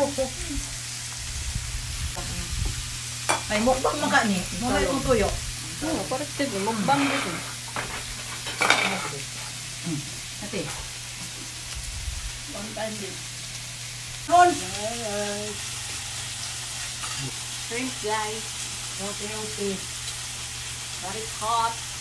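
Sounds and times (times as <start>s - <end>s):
meat sizzling in a grill pan: 0.0s - 22.0s.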